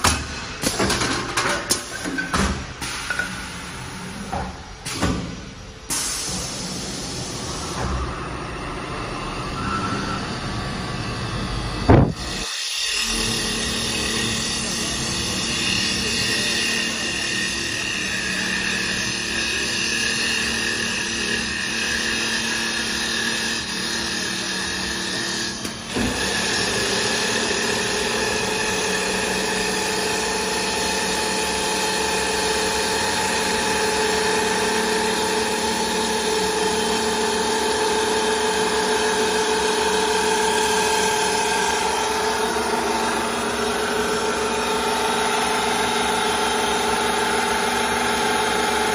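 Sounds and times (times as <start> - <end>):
lathe motor whine: 7.6 - 48.9.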